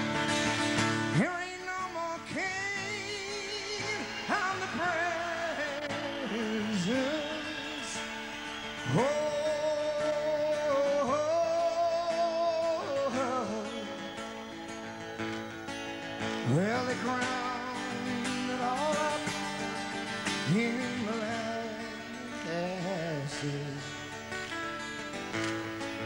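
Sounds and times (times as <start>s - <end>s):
acoustic guitar: 0.0s - 26.0s
man singing long held notes: 1.2s - 14.3s, 20.3s - 24.0s.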